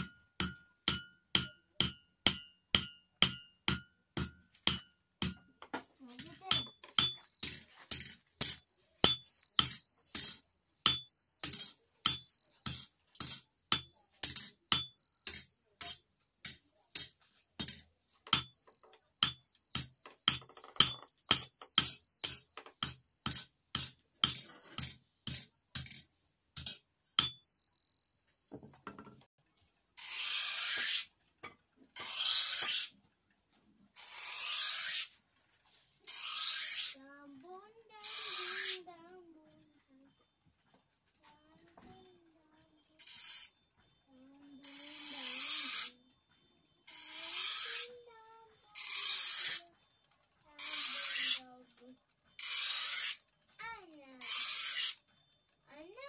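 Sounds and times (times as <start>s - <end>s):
hammer striking blade on anvil: 0.0s - 29.2s
anvil ringing: 0.0s - 29.3s.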